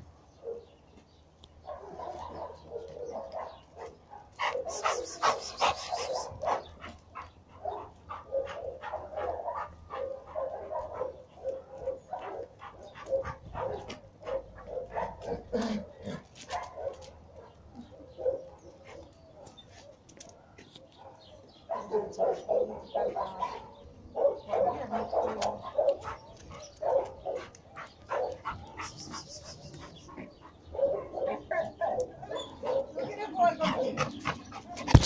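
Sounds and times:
dog barking: 0:00.4 - 0:00.7, 0:01.6 - 0:06.7, 0:07.6 - 0:15.8, 0:16.5 - 0:19.6, 0:21.0 - 0:28.9, 0:30.7 - 0:34.0.

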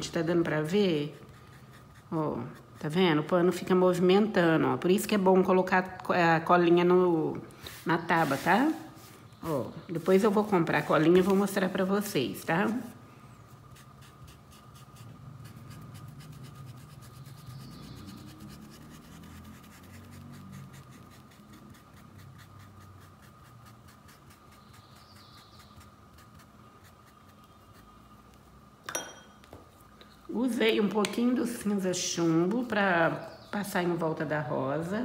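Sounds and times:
faint steady high hum: 0:00.0 - 0:35.0
paintbrush scrubbing cloth: 0:07.7 - 0:13.0, 0:13.7 - 0:27.9.

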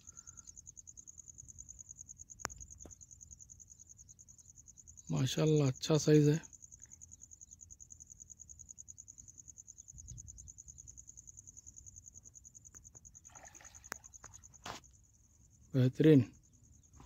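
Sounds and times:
crickets trilling: 0:00.0 - 0:17.0
fish splashing at surface: 0:13.3 - 0:14.6.

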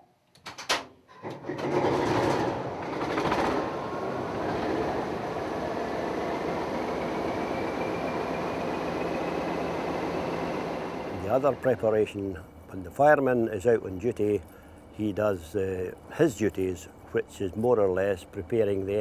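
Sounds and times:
diesel engine starting and running: 0:01.1 - 0:12.4
thin rising whine: 0:03.8 - 0:12.0.

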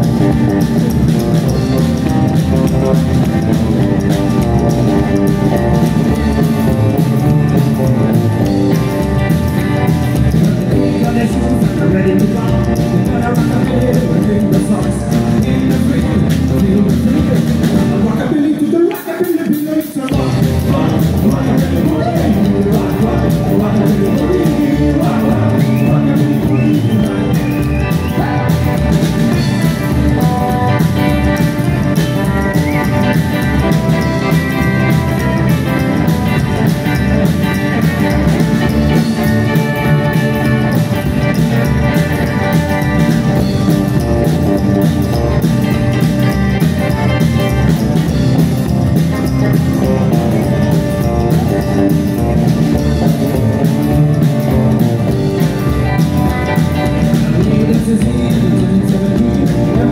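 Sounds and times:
slapped upright bass: 0:00.0 - 0:18.6, 0:20.1 - 0:59.9
drum kit: 0:00.0 - 0:59.9
electric guitars: 0:00.0 - 0:59.9.

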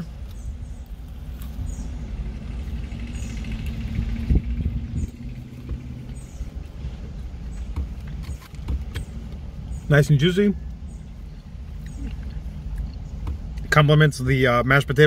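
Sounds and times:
car idling: 0:00.0 - 0:15.0
chewing crispy food: 0:11.1 - 0:13.7.

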